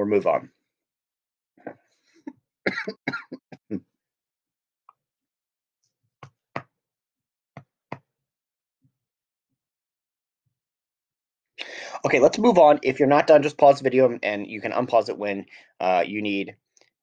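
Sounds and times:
man coughing: 0:02.7 - 0:03.8.

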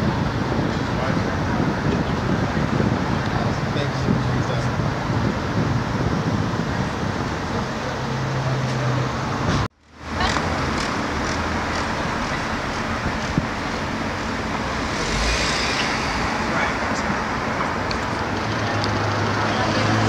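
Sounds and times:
passing cars traffic noise: 0:06.9 - 0:20.0.

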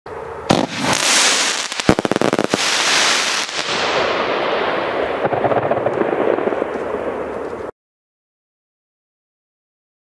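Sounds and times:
fireworks crackling hiss: 0:00.5 - 0:05.4
fireworks crackling pops: 0:00.5 - 0:07.7.

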